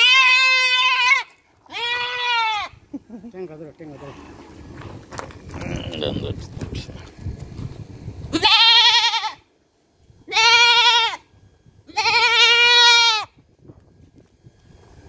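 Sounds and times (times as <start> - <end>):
goat bleating: 0.0 - 2.9, 5.5 - 6.5, 8.3 - 9.4, 10.3 - 11.2, 11.9 - 13.3.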